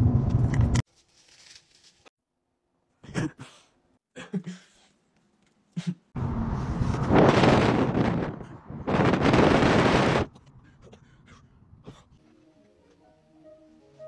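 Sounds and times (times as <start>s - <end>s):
wind buffeting microphone: 6.3s - 10.4s.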